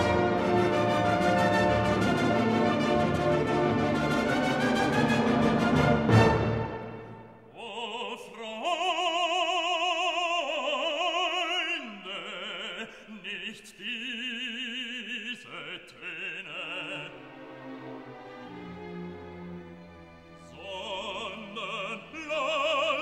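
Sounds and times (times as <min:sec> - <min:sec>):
orchestral chord with brass: 0:00.0 - 0:07.3
operatic voice singing: 0:07.5 - 0:17.4, 0:20.4 - 0:23.0.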